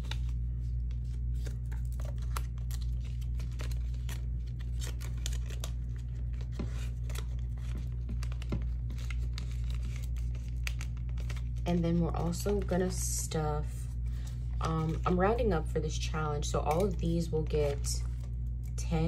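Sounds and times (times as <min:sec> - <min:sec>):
paper bills rustling: 0:00.0 - 0:13.1
steady low hum: 0:00.0 - 0:19.0.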